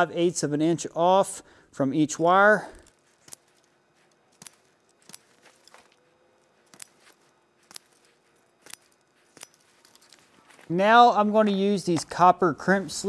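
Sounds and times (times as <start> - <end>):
wire strippers clicking: 2.8 - 10.6.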